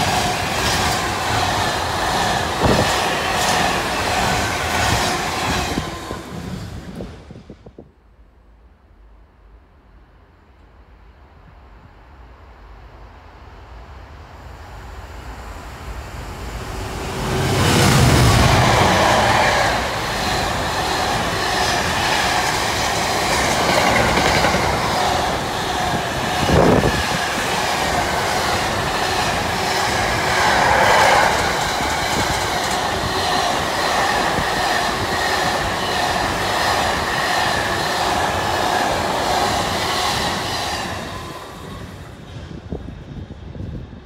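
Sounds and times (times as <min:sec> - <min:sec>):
train wheels clattering on track: 0:00.0 - 0:07.3, 0:17.0 - 0:42.9.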